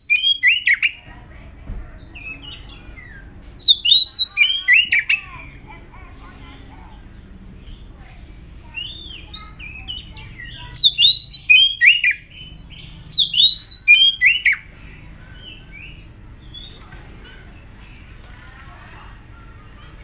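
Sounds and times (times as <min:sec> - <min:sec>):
bird singing whistled notes: 0:00.0 - 0:01.0, 0:02.1 - 0:05.3, 0:08.7 - 0:16.7.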